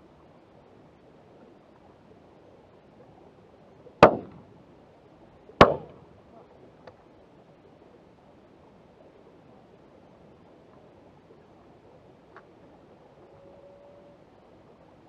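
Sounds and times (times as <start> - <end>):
shotgun shots: 4.0 - 4.4, 5.6 - 6.0.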